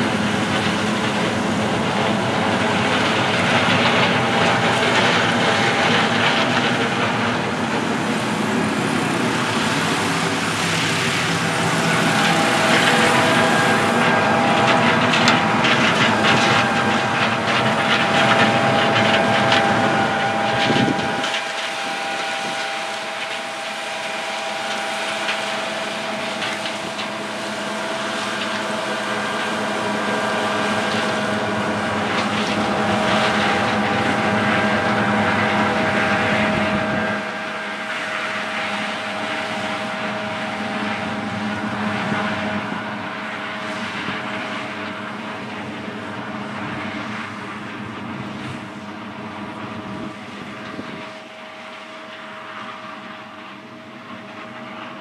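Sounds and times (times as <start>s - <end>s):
combine harvester engine drone: 0.0s - 55.0s
machinery whine: 0.0s - 55.0s.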